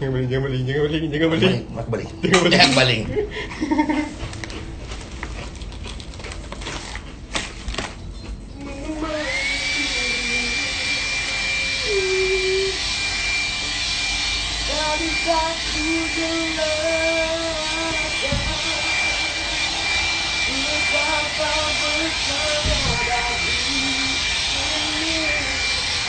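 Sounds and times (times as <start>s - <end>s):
hair dryer motor whine: 8.6s - 26.0s
rush of air: 16.2s - 26.0s.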